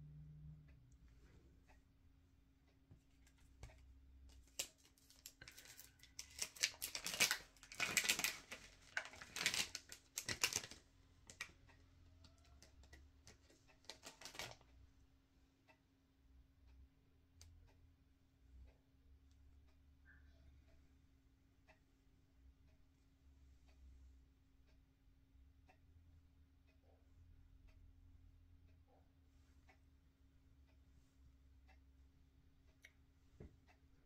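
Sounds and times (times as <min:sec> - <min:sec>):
plastic tray crinkling and clicking: 0:04.3 - 0:11.5, 0:12.5 - 0:14.6.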